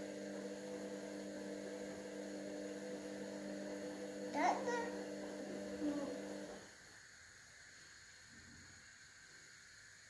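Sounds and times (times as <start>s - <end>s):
electrical hum: 0.0s - 7.1s
child's voice: 4.3s - 5.0s, 5.8s - 6.2s.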